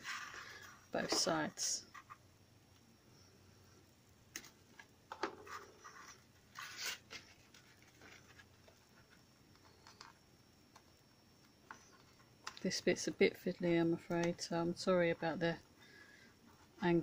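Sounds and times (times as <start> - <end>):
paper rustling and crinkling: 5.4 - 10.0.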